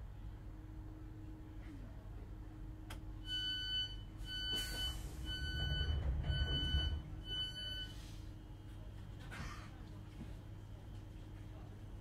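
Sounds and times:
electronic door warning beeps: 3.2s - 8.0s
low train rumble: 4.3s - 9.0s.

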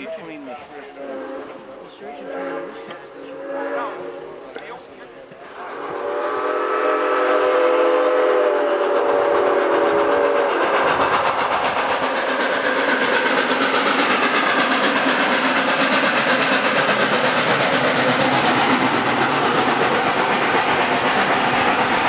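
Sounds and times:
train passing exhaust and wheels: 0.0s - 22.0s
steam locomotive whistle: 0.9s - 4.5s, 5.6s - 11.3s.

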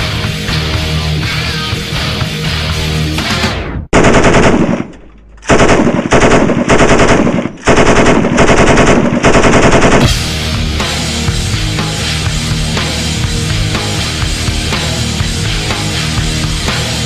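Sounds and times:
heavy rock music: 0.0s - 3.9s, 10.0s - 17.0s
machine gun firing bursts: 3.9s - 10.1s.

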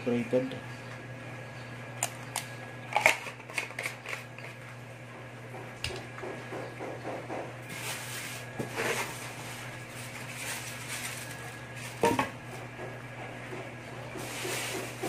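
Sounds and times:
plastic packing rustling: 7.6s - 12.7s, 14.1s - 15.0s.

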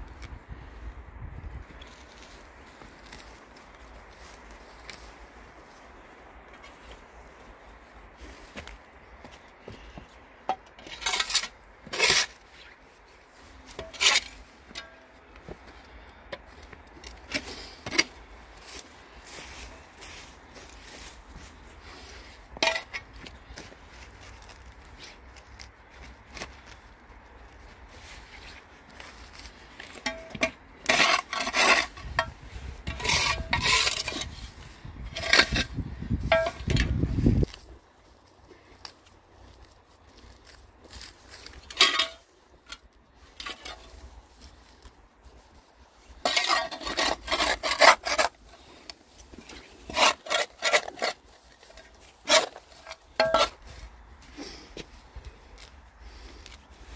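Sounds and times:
trowel scraping along stone: 10.8s - 12.7s, 13.7s - 15.0s, 29.3s - 37.0s, 46.1s - 53.7s.

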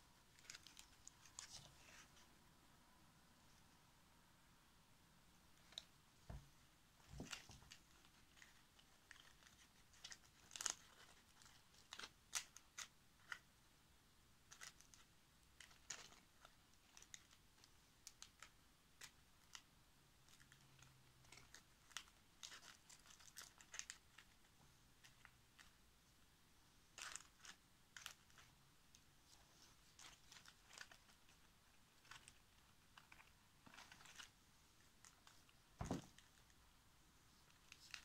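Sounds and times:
dry husks crinkling: 29.3s - 36.5s.

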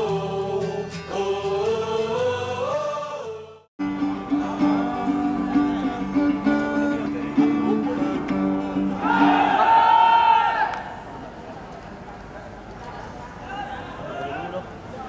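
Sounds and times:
acoustic guitar picking: 3.8s - 9.7s.

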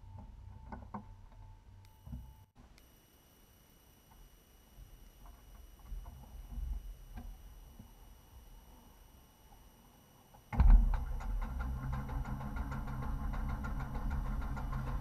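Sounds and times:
propeller engine starting and running: 10.3s - 15.0s.

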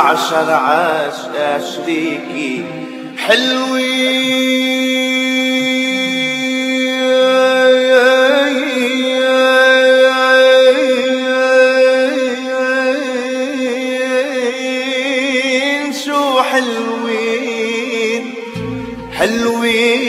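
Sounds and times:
pop music with drone and melody: 18.1s - 20.0s.

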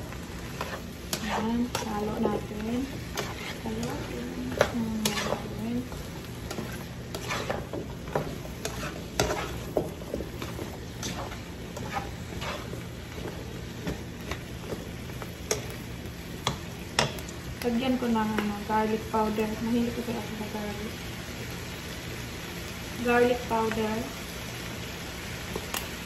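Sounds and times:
vegetables sizzling: 0.0s - 26.0s
spatula scraping a frying pan: 0.2s - 17.2s.

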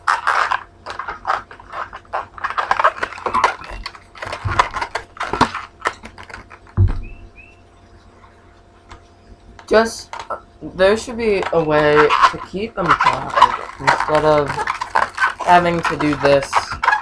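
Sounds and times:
rubbery balloon squeaks: 0.0s - 7.6s, 9.6s - 17.0s
dull thump: 6.8s - 7.4s.

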